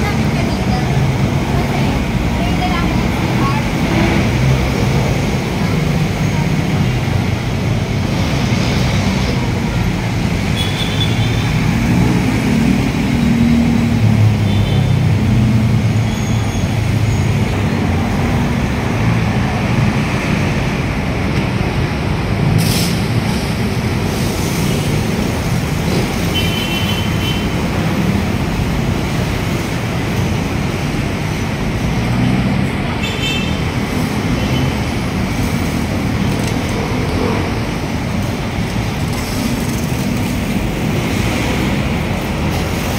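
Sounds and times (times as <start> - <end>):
busy road traffic: 0.0 - 42.9.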